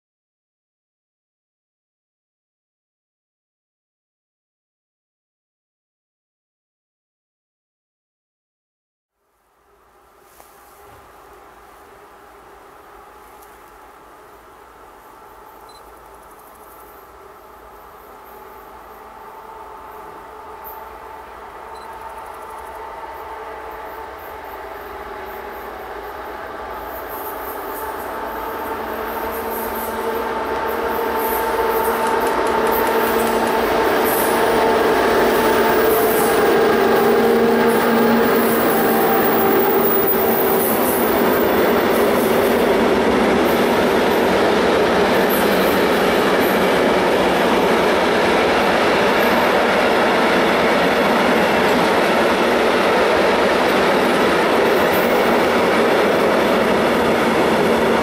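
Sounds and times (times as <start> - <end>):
electric locomotive whine: 9.2 - 58.0
train wagons rolling: 26.7 - 42.6.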